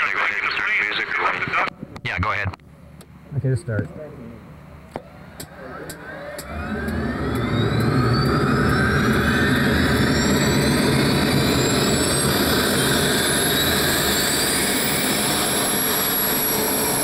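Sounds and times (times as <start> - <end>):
low engine rumble: 0.0 - 16.3
turbojet whine spooling up: 5.2 - 17.0.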